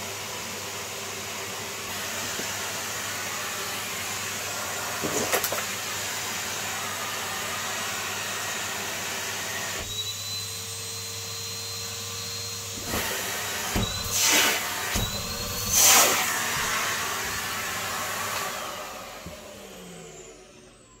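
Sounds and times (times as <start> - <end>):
vacuum cleaner running: 0.0 - 21.0.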